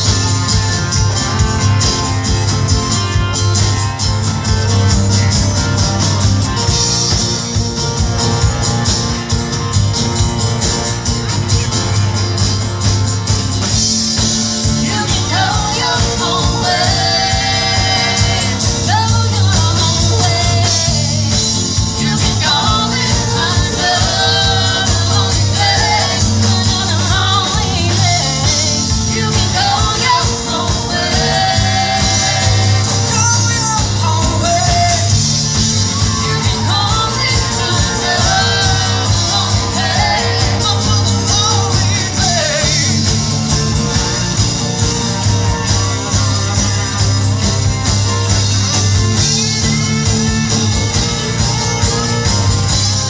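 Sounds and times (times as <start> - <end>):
live rock band: 0.0 - 53.0
strong bass line: 0.0 - 53.0
woman singing lead: 14.6 - 43.2.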